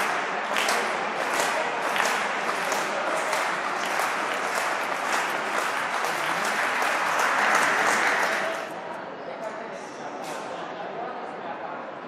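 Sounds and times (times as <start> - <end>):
spectators applauding: 0.0 - 8.7.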